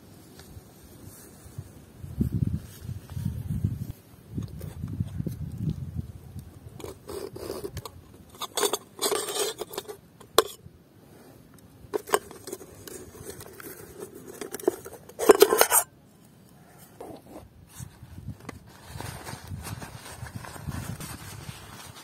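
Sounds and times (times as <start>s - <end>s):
cook pot and lid clinking: 14.3s - 15.9s.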